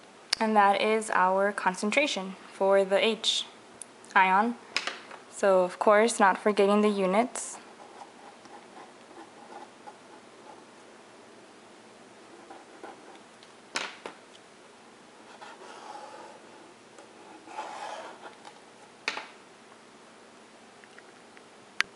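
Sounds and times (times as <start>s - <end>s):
felt-tip marker scratching paper: 7.8s - 10.6s, 12.3s - 13.2s, 15.2s - 18.5s.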